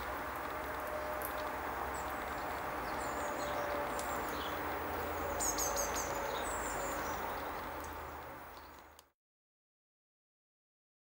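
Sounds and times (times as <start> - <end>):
low rush of background noise: 0.0 - 9.0
small birds chirping: 1.9 - 9.0.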